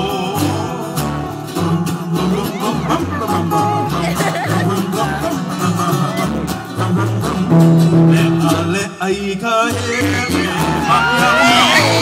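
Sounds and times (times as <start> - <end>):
person singing: 0.0 - 6.9, 7.6 - 12.0
rhythmic bass line: 0.0 - 9.1
plucked guitar: 0.0 - 12.0.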